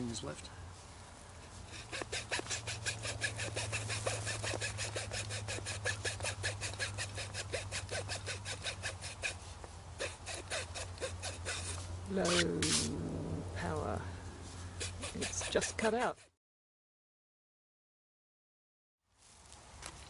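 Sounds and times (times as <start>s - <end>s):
hacksaw sawing through wood: 1.7s - 9.4s, 10.0s - 12.9s, 14.8s - 16.3s
steady low hum: 10.2s - 15.9s.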